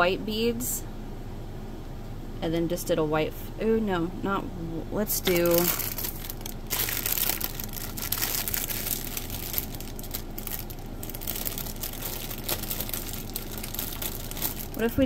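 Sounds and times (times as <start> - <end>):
plastic bag crinkling: 5.2 - 15.0.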